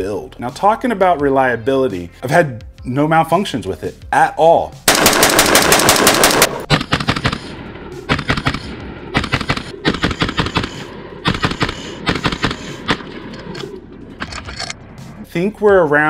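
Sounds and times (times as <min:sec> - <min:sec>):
rapid gunshots: 0:04.9 - 0:13.3.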